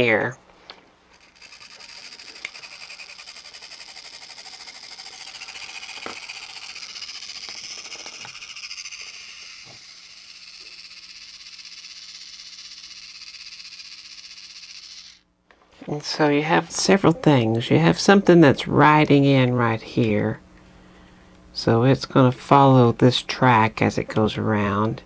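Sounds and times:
electric motor whirring: 1.0s - 15.2s.

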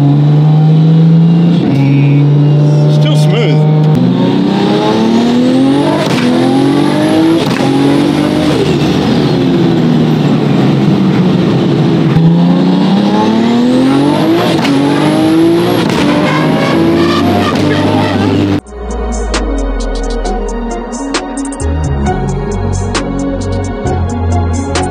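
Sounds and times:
car engine accelerating through gears: 0.0s - 18.6s.

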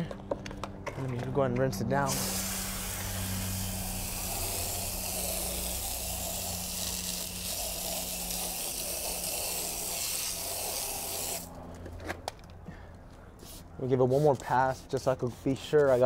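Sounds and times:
water spray hissing: 2.1s - 11.5s.

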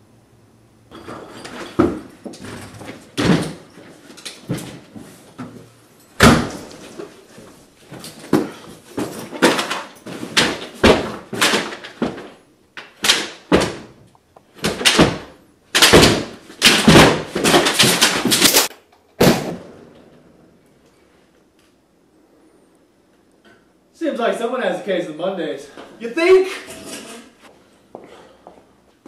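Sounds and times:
door slamming: 6.2s - 6.8s
loud irregular bangs and thuds: 6.2s - 7.0s, 7.9s - 12.4s, 13.0s - 14.0s, 14.6s - 20.1s.

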